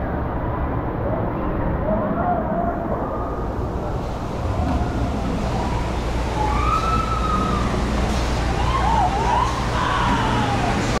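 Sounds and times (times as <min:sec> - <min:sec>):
low rumble: 0:00.0 - 0:11.0
distant people shrieking: 0:04.7 - 0:11.0.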